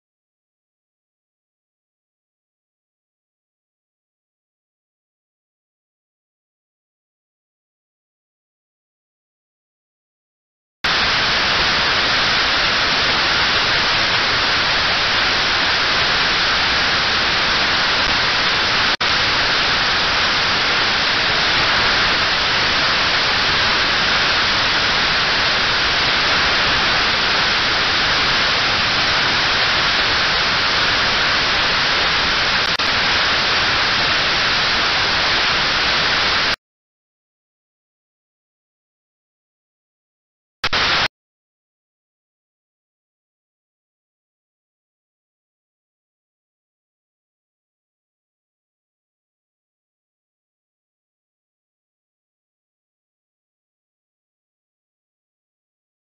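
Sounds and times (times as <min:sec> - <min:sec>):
radio static hiss: 0:10.9 - 0:36.6, 0:40.6 - 0:41.1.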